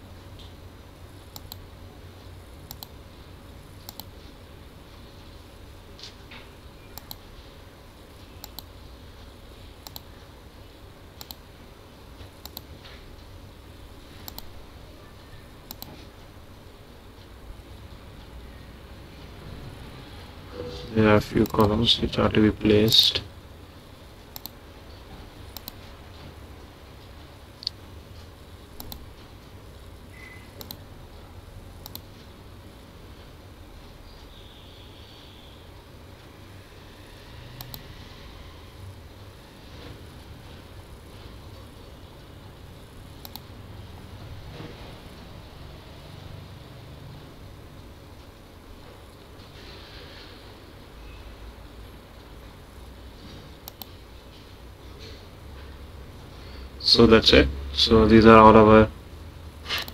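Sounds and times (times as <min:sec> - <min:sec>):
faint room hum: 0:00.0 - 0:59.9
computer mouse button clicks: 0:30.6 - 0:30.8, 0:43.2 - 0:43.4.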